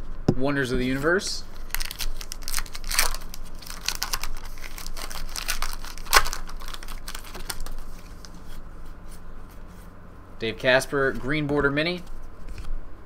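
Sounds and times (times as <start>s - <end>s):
trading cards flipped by hand: 1.6s - 8.6s.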